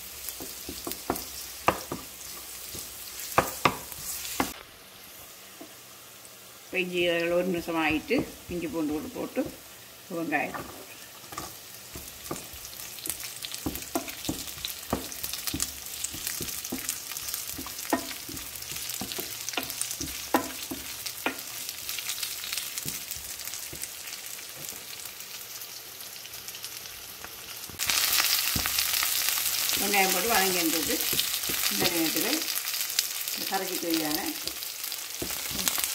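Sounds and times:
onion sizzling in oil: 0.0 - 35.9
spatula knocking against pan: 13.6 - 21.5.

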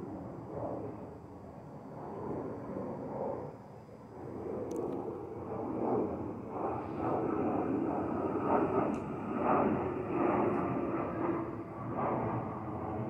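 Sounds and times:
distant jet engine rumble: 0.0 - 13.0.

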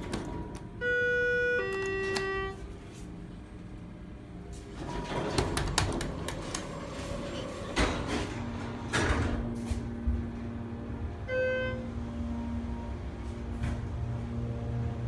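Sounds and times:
sliding doors clattering: 4.5 - 10.8.

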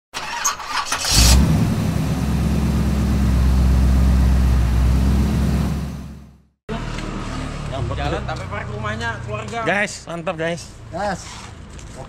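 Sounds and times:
car engine running: 1.1 - 6.4.

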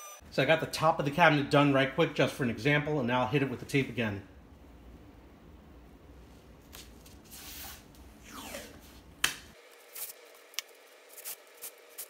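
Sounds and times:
tape ripping off roll: 6.7 - 12.0
tape tearing with sharp snap: 9.2 - 12.0.

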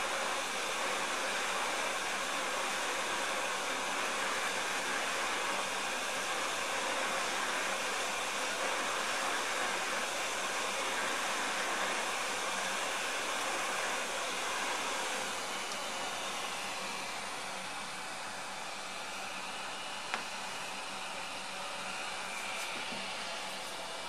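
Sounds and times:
hot air blowing from nozzle: 0.0 - 17.5.

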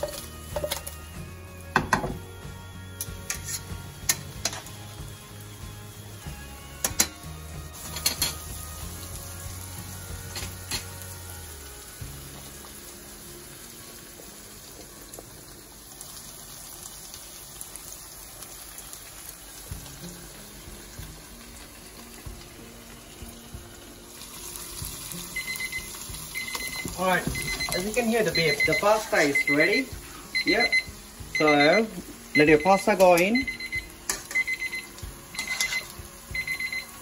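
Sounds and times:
metal tongs clinking on pot: 0.0 - 0.9, 3.0 - 4.7, 6.8 - 7.2, 7.8 - 8.5, 10.3 - 11.0, 32.8 - 33.4, 34.1 - 34.5, 35.3 - 36.0
sauce sizzling in a pan: 0.0 - 37.0
water boiling in a pot: 8.2 - 37.0.

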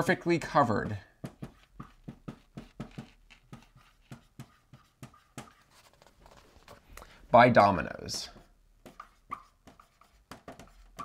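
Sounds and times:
marker squeaking on whiteboard: 1.3 - 6.8, 8.4 - 11.0.

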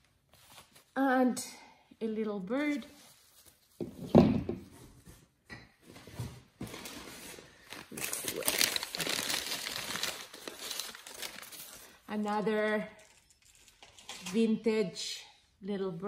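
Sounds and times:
paper crumpling and crinkling: 6.6 - 12.1.

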